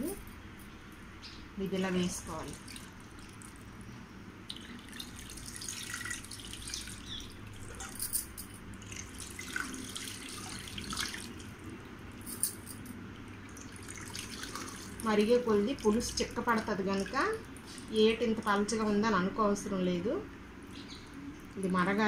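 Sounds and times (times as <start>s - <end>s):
water dripping into a steel pot: 4.4s - 7.9s.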